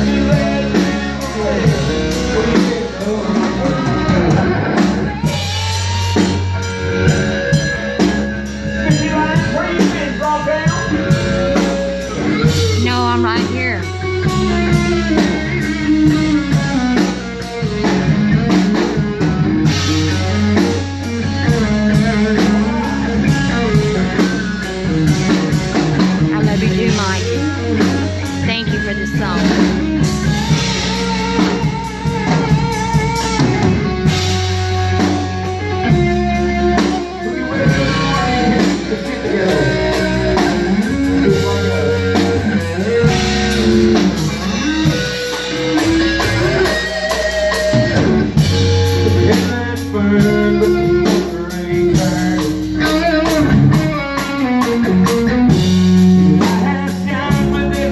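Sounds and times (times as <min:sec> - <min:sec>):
rock band playing: 0:00.0 - 0:57.9.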